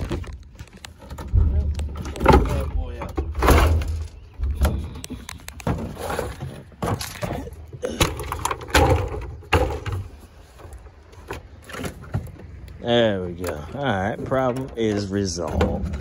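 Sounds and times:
wooden boards thumping and cracking: 0.0 - 12.6.

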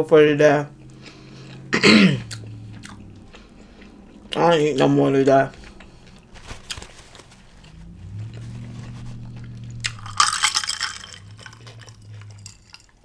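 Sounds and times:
closed-mouth humming: 0.0 - 13.0.

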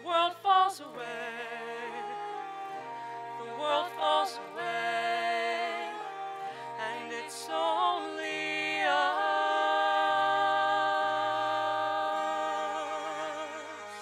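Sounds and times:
woman singing ballad: 0.0 - 1.9
sustained accompaniment chords: 0.0 - 14.0.

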